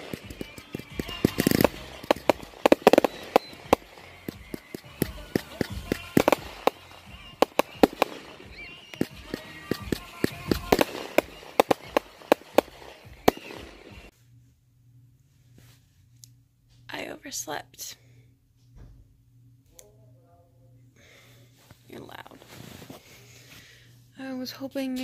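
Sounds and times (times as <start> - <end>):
firework crackling pops: 0.0 - 14.1
firework shells bursting: 0.0 - 14.1.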